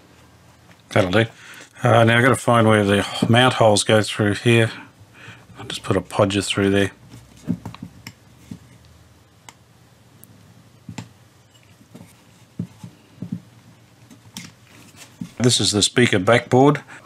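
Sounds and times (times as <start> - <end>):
speaker cover being handled: 7.0 - 8.8, 10.9 - 15.4.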